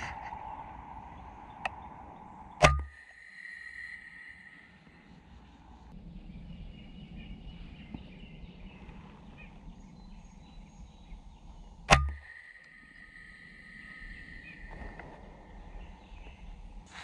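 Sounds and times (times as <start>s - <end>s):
air rifle shot: 11.9s - 12.5s.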